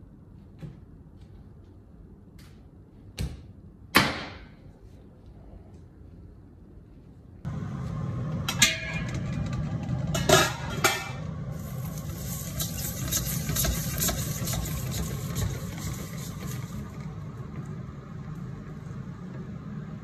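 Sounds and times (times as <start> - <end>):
steady low hum: 4.6 - 20.0
meat sizzling in a pot: 11.5 - 16.8.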